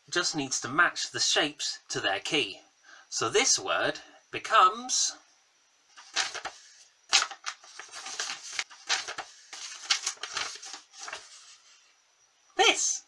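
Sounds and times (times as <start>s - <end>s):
paper crinkling: 6.0s - 11.6s.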